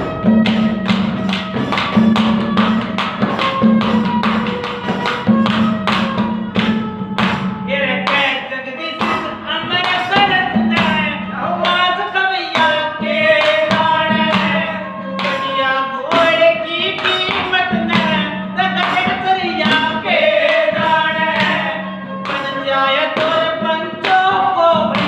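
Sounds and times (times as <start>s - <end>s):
hand drum strokes: 0.0s - 8.4s, 9.0s - 25.0s
harmonium: 0.0s - 25.0s
man singing: 7.7s - 25.0s.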